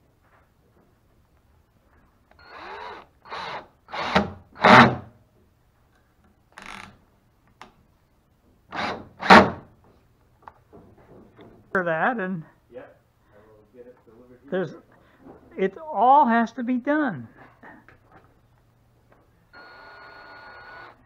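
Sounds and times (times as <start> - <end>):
cordless drill whirring: 2.3 - 4.9, 19.5 - 21.0.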